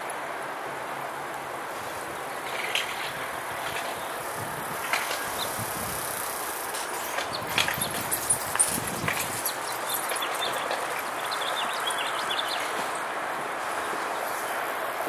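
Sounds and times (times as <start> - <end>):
outdoor background rush: 0.0 - 15.0
small birds chirping: 3.7 - 6.5, 7.1 - 13.0.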